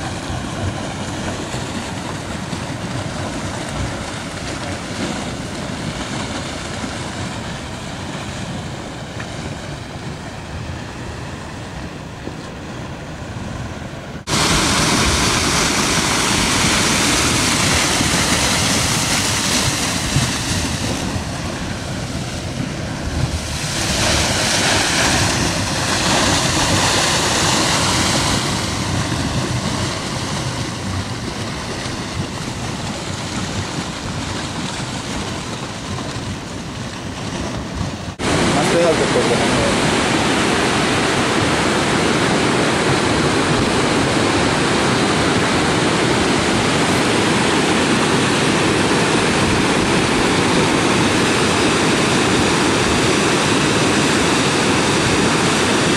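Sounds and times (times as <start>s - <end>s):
mudflow rushing: 0.0s - 55.9s.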